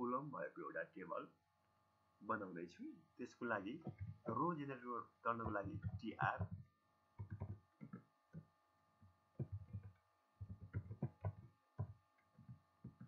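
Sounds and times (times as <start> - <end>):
keyboard keys tapping: 3.8 - 4.4, 5.4 - 8.5, 9.4 - 13.0.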